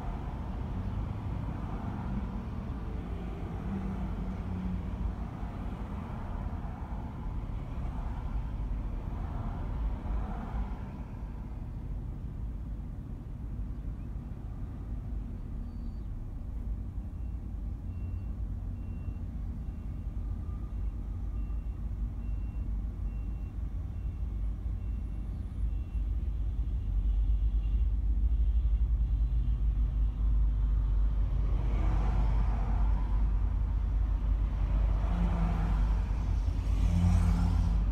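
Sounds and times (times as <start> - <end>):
road traffic rumble: 0.0 - 37.9
faint high beep: 17.1 - 26.2.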